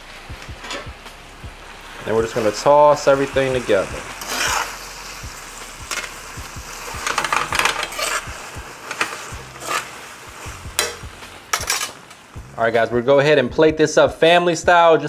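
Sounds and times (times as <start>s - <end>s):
sauce sizzling: 0.0s - 14.6s
metal tongs clinking on pan: 10.8s - 12.0s.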